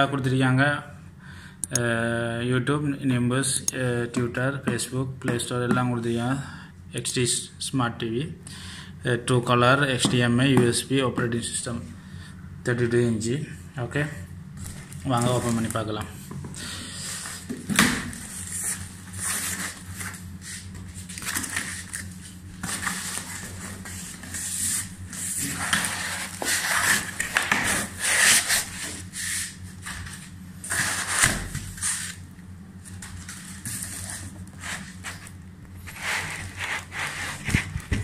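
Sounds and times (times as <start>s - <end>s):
low steady hum: 0.0s - 38.0s
foam and cardboard scraping: 33.2s - 38.0s.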